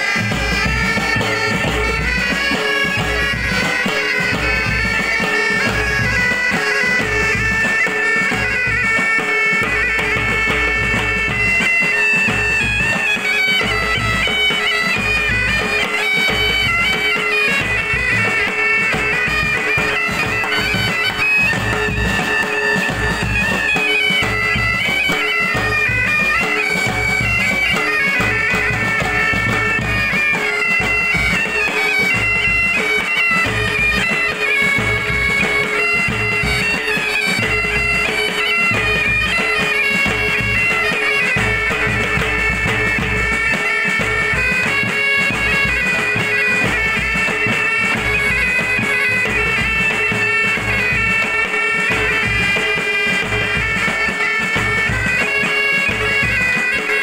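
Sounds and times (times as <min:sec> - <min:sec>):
bagpipe drone: 0:00.0 - 0:57.0
bagpipes playing melody: 0:00.0 - 0:57.0
side drums and bass drum: 0:00.0 - 0:57.0.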